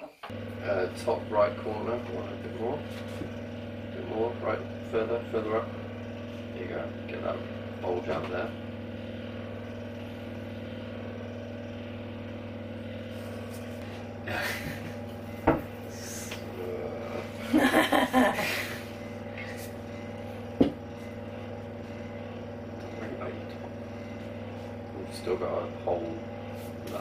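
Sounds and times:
steady low hum: 0.2s - 27.0s
rolling pin knocking on wood: 15.4s - 15.7s, 20.6s - 20.9s.

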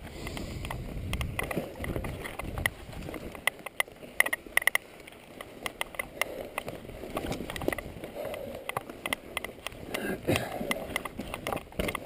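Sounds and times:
bike parts clicking and knocking: 0.0s - 12.0s
low rumble of bike riding: 0.0s - 12.0s.

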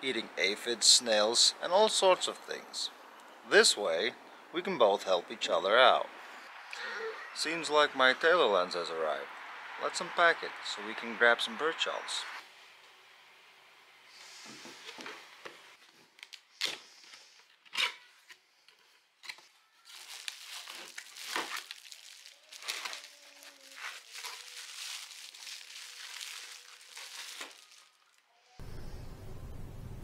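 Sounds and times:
plastic wrapping crinkling: 18.7s - 28.3s.

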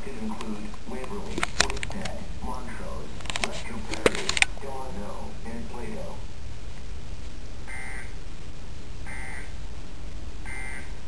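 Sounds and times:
television emergency alert beeps: 7.7s - 8.2s, 9.1s - 9.5s, 10.5s - 11.0s.

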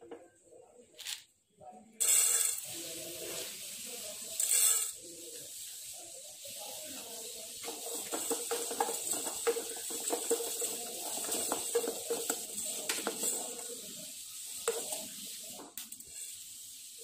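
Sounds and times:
peppercorns rattling in a pan: 2.0s - 17.0s
wooden spatula stirring: 2.0s - 17.0s.

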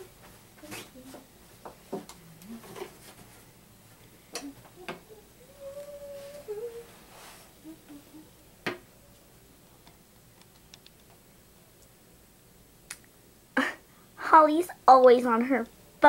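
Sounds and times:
person humming: 2.2s - 2.9s, 4.3s - 8.5s.

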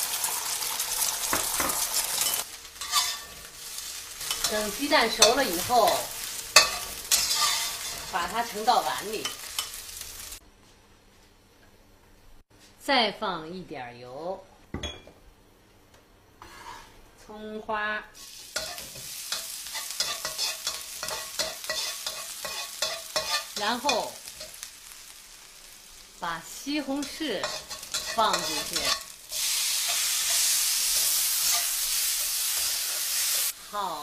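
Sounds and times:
food sizzling in a wok: 0.0s - 10.4s, 16.4s - 17.0s, 18.1s - 34.0s
metal spatula scraping wok: 1.6s - 9.8s, 16.4s - 17.0s, 18.3s - 24.6s, 26.9s - 33.5s.

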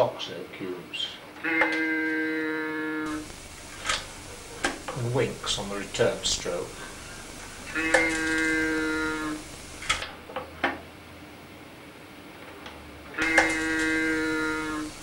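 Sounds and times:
mechanical moo reedy tone: 1.4s - 10.1s, 13.2s - 15.0s.

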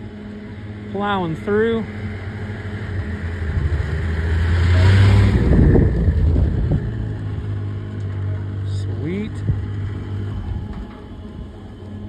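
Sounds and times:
snowmobile driving past: 0.0s - 12.0s.

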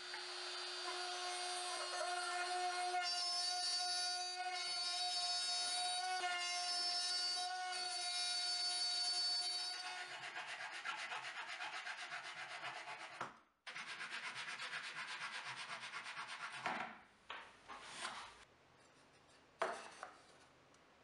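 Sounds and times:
hand saw cutting plywood: 9.8s - 16.7s.

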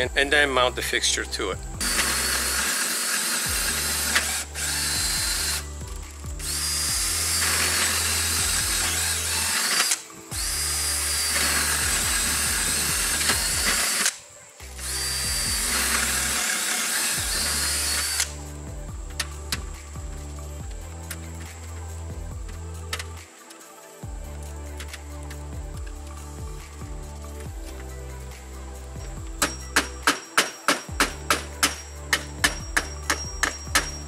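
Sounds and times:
power drill whining: 1.8s - 14.2s, 14.8s - 18.4s.

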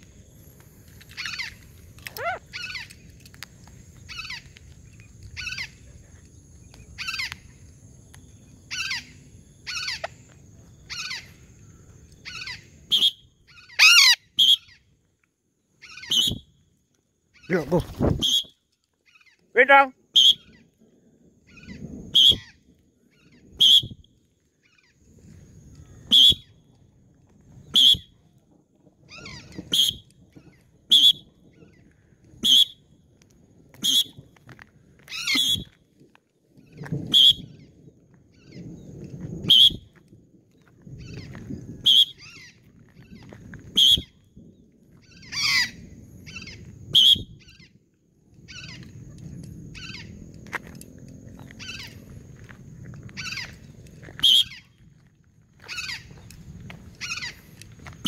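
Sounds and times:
parrot screeching calls: 1.2s - 2.9s, 8.7s - 9.1s, 10.9s - 11.3s, 12.2s - 14.8s, 35.1s - 35.7s, 45.1s - 47.7s, 49.8s - 50.2s, 51.6s - 52.0s, 53.2s - 53.6s, 55.6s - 56.2s, 57.0s - 57.4s.

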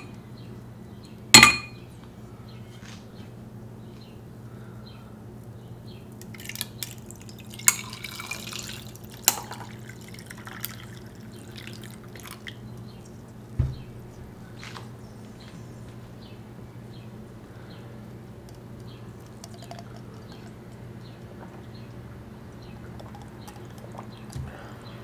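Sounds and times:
low steady hum: 0.0s - 25.0s
water pouring over ice: 6.3s - 12.6s
dull knock: 13.6s - 13.9s.

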